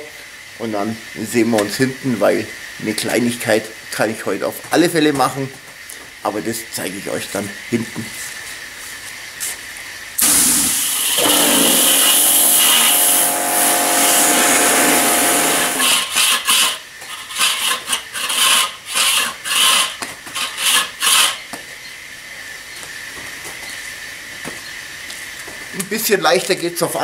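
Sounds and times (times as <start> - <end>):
pressure washer spray hissing: 10.2 - 16.2
pump motor running: 10.2 - 19.9.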